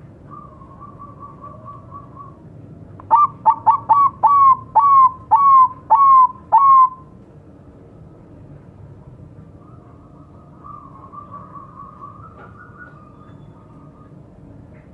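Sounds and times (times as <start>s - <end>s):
dove cooing: 0.3s - 2.4s, 3.1s - 7.0s.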